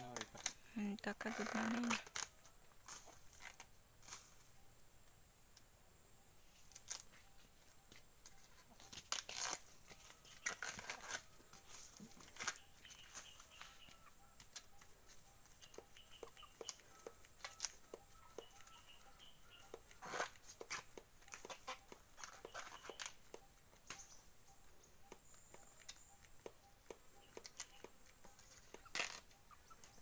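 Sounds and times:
stiff leaves snapping and tearing: 1.4s - 4.2s, 8.9s - 11.3s.

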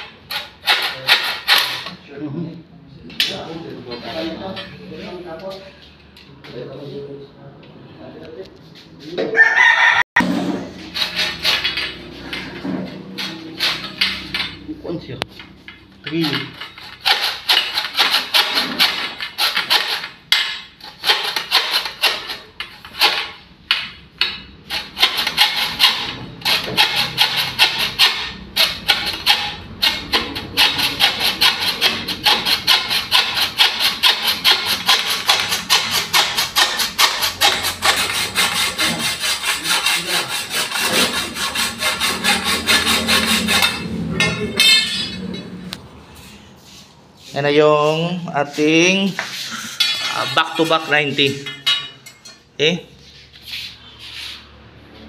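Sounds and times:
hacksaw cutting metal conduit: 0.0s - 2.0s, 10.2s - 14.6s, 16.0s - 45.4s, 49.6s - 52.4s.

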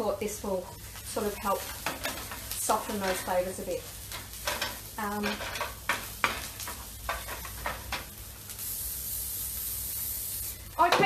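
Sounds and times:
onions sizzling in a frying pan: 0.0s - 11.0s
steady high hiss: 0.0s - 11.0s
utensil scraping a pan: 1.4s - 8.1s.

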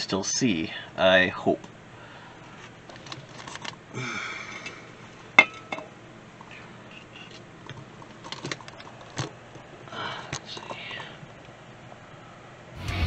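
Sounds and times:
handling noise: 2.4s - 3.9s, 4.6s - 11.6s
metal clinks and knocks: 5.4s - 5.9s.

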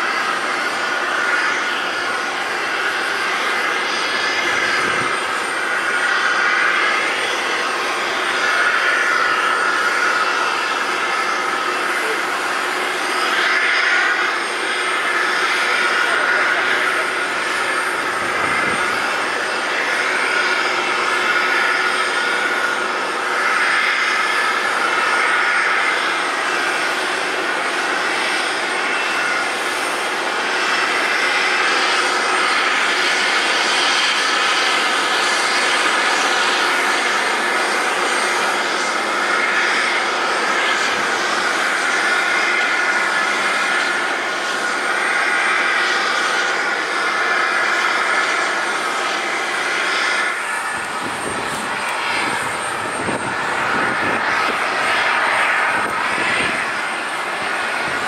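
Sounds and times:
jet engines idling: 0.0s - 58.0s.

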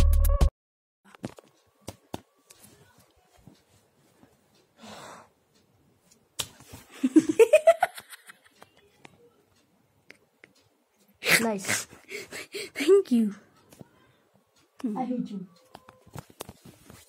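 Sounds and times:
stifled giggling: 6.9s - 8.8s.

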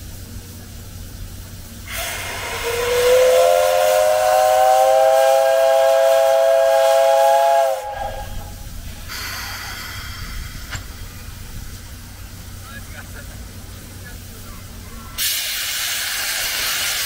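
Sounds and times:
steam hissing: 0.0s - 17.0s
steam whistle blast: 1.9s - 8.6s.

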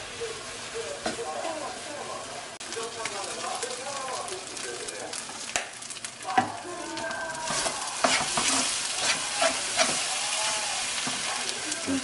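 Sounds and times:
fried rice sizzling in a wok: 0.0s - 12.0s
metal ladle scraping a wok: 7.5s - 10.1s.

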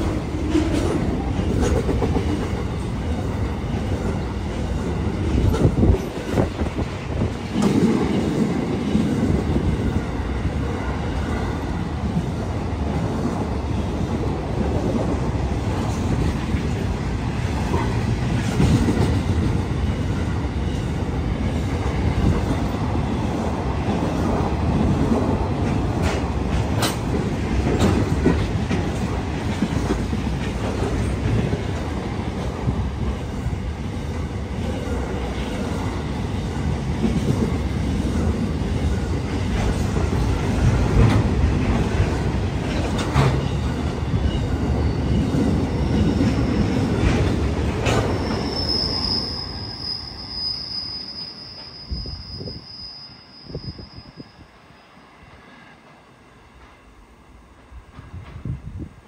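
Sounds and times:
train wheels rumbling on rails: 0.0s - 54.6s, 55.3s - 59.0s
wheels clicking over rail joints: 24.2s - 32.5s, 39.5s - 48.4s.

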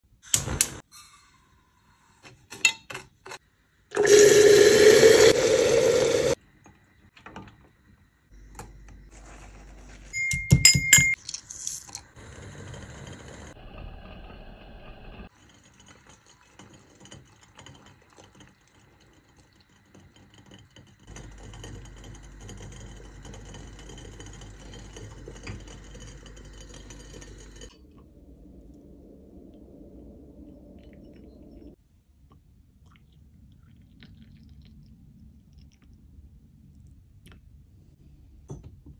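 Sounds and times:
tea simmering hiss: 3.9s - 7.0s
glass clinks: 10.2s - 11.2s.

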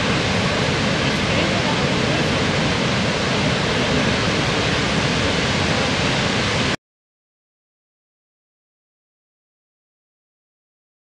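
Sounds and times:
waterfall roaring: 0.0s - 6.8s.

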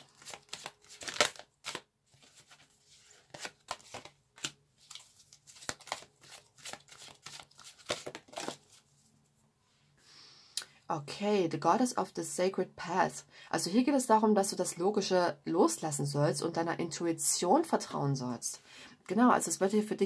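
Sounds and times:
cards being shuffled: 0.0s - 8.9s.

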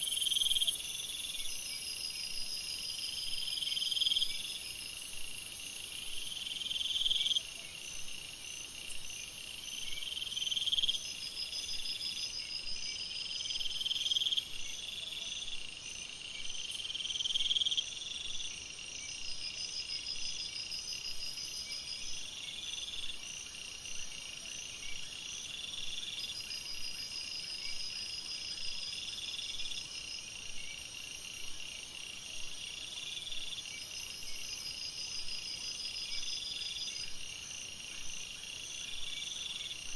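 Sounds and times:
insects chirping: 0.0s - 39.9s.

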